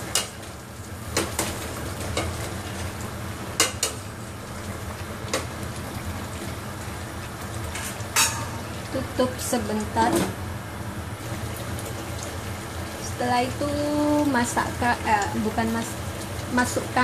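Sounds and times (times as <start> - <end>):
utensil clinking in metal pot: 7.8 - 8.6.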